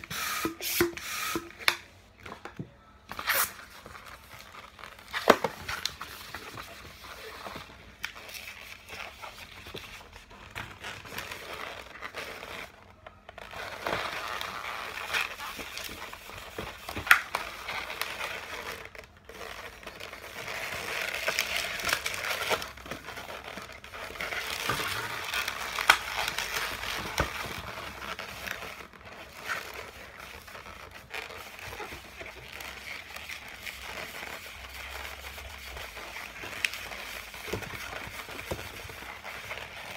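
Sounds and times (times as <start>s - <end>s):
balloons rubbing and squeaking: 0.0s - 1.7s, 3.1s - 39.9s.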